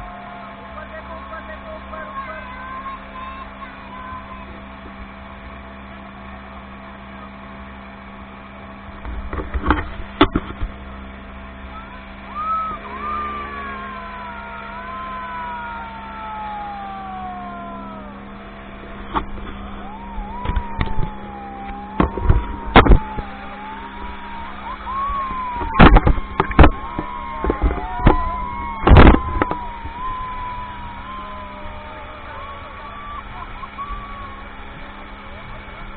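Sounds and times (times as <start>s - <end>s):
speedboat engine running: 0.0s - 35.9s
rushing water: 11.7s - 35.9s
wind noise: 20.2s - 31.3s
sharp loud thumps: 21.9s - 23.3s, 25.6s - 29.7s.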